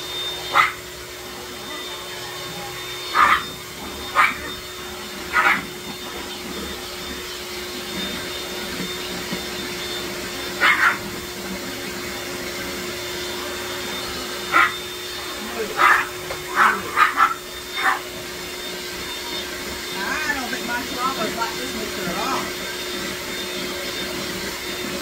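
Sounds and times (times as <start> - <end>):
electric hand mixer running: 0.0 - 25.0
small dog yipping: 0.5 - 0.8, 3.1 - 3.5, 4.1 - 4.6, 5.3 - 5.6, 10.6 - 11.0, 14.5 - 14.8, 15.8 - 18.0.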